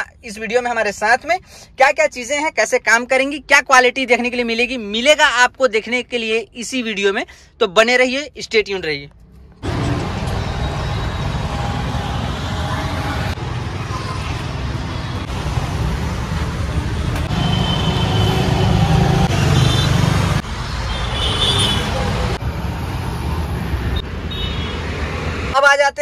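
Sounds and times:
street traffic rumble: 8.4s - 25.9s.

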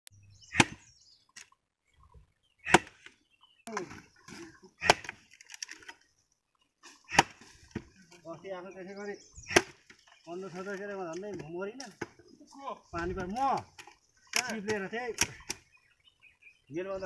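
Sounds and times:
axe chopping wood: 0.5s - 0.9s, 2.6s - 3.1s, 4.8s - 5.2s, 7.1s - 7.9s, 9.5s - 10.0s.

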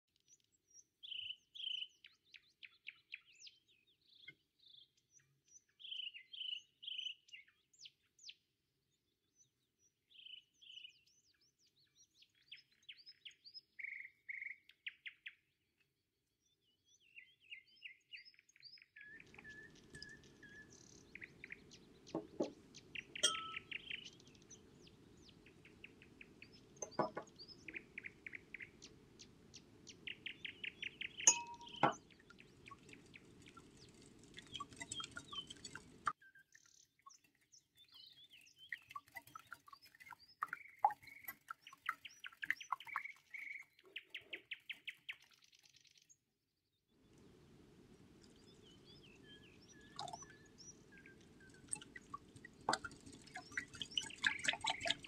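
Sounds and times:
songbirds chirping: 0.2s - 46.2s, 47.0s - 55.0s
sharp clinks: 23.2s - 23.6s, 31.3s - 32.0s.

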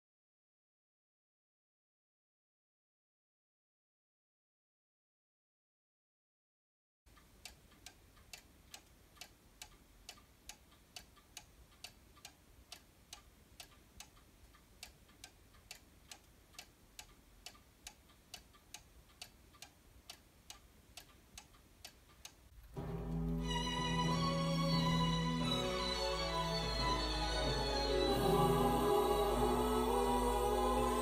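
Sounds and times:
pendulum wall clock ticking: 7.1s - 23.4s
music: 22.7s - 31.0s.

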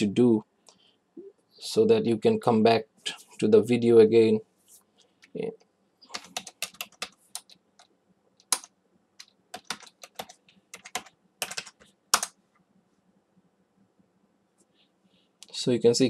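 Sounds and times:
computer keyboard typing: 6.1s - 12.4s.

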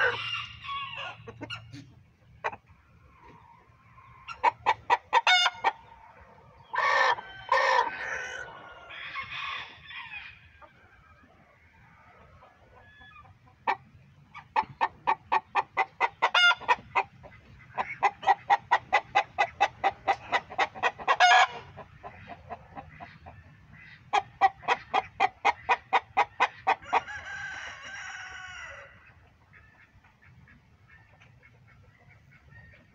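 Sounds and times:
chickens clucking: 0.0s - 32.9s
drawn-out chicken call: 0.0s - 32.9s.

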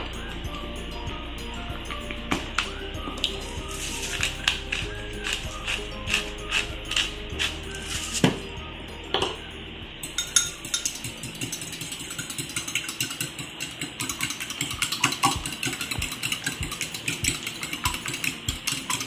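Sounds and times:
fork clinking against ceramic bowl: 10.1s - 19.0s.

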